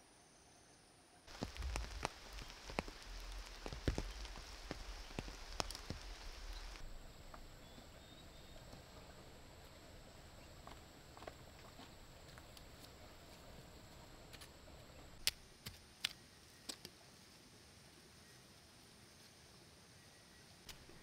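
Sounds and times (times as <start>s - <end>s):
faint insect chorus: 0.0s - 21.0s
stems snapping: 1.3s - 6.8s, 15.2s - 17.0s, 20.7s - 21.0s
leaves rustling: 1.3s - 10.6s.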